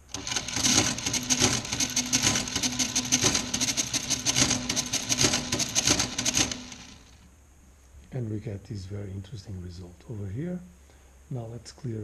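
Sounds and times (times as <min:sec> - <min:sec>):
calculator mechanism clattering: 0:00.0 - 0:07.2
calculator motor humming: 0:00.0 - 0:07.2.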